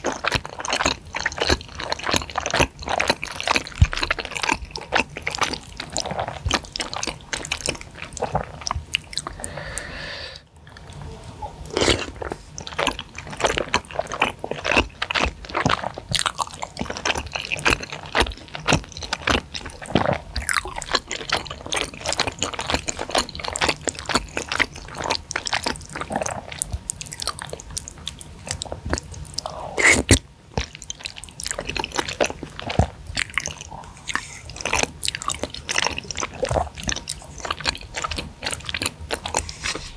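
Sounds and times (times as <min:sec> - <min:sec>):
wet chewing: 0:00.0 - 0:09.9, 0:11.6 - 0:39.9
noodles slurped: 0:11.6 - 0:39.9.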